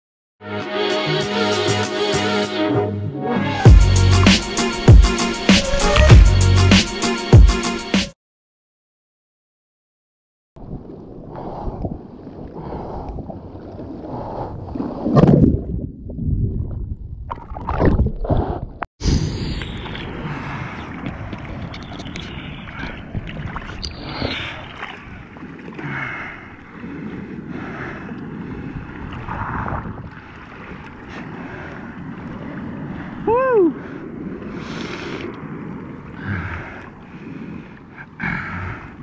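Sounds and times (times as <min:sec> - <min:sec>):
water sloshing and splashing: 0:10.6 - 0:18.9, 0:19.7 - 0:33.2.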